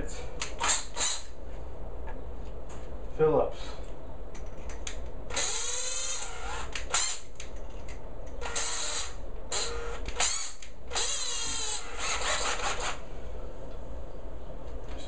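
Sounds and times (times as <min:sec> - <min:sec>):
cordless drill driving screws: 0:05.3 - 0:07.3, 0:08.4 - 0:13.0.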